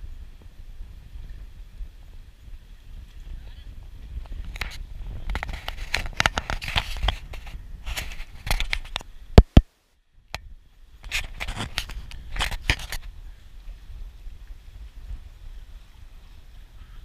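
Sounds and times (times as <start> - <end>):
sharp clicks scrapes and knocks: 4.2 - 9.6, 11.0 - 13.1.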